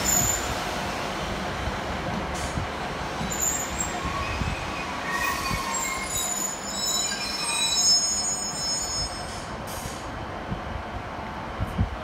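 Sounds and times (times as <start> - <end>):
train rumbling: 0.0 - 12.0
high-pitched brake squeal: 3.3 - 10.0.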